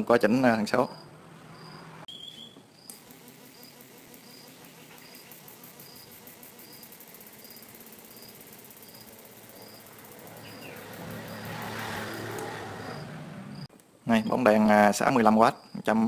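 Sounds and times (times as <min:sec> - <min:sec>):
high-pitched ticking buzz: 0:02.8 - 0:12.4.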